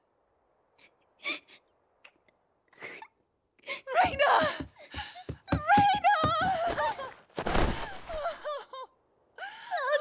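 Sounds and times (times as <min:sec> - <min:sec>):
person sobbing and wailing: 0:02.8 - 0:07.2, 0:07.9 - 0:10.0.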